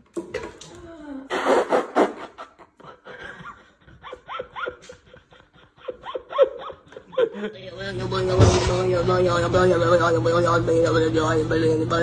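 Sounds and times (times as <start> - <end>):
person laughing: 1.8 - 7.6.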